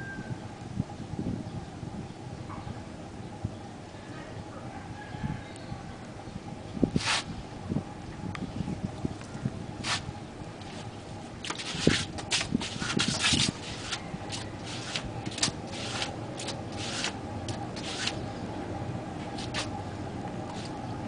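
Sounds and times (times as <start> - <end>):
foot scraping potter's wheel rim: 10.6 - 18.3, 19.2 - 19.8, 20.5 - 20.8.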